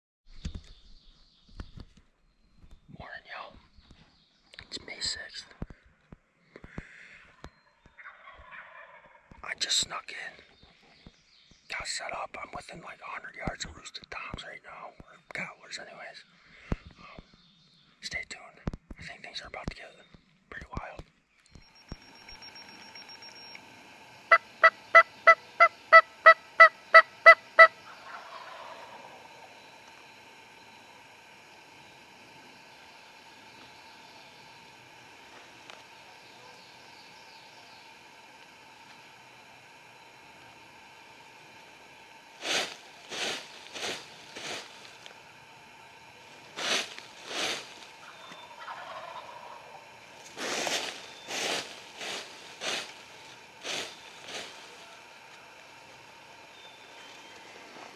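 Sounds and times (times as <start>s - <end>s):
turkey yelping: 8.0s - 9.2s, 24.3s - 29.3s, 48.0s - 49.8s
hand scratching dry leaves: 42.4s - 45.4s, 46.0s - 48.8s, 50.1s - 56.0s.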